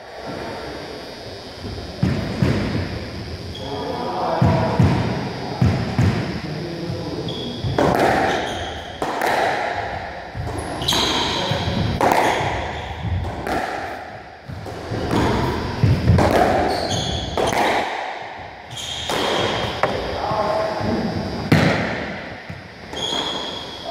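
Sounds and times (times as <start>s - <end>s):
squash ball cracks: 9.0s - 9.7s, 12.0s - 12.5s, 17.4s - 18.2s
shoe squeaks on wooden floor: 16.7s - 17.3s, 18.7s - 20.0s, 22.9s - 23.9s.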